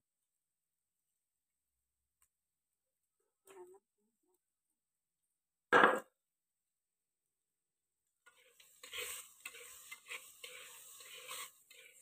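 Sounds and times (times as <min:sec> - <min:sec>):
sharp knock: 0:05.7 - 0:06.1
sizzle: 0:08.1 - 0:12.0
metal ladle scraping clay pot: 0:08.2 - 0:12.0.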